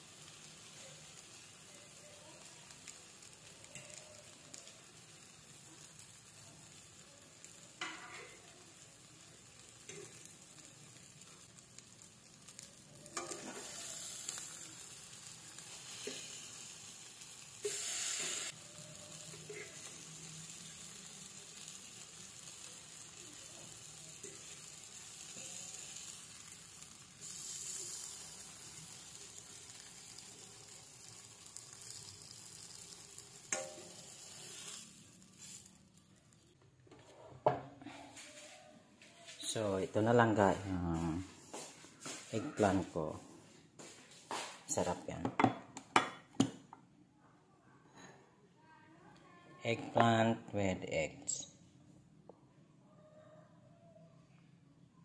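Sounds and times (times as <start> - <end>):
eggplant sizzling in a frying pan: 0.0 - 46.7.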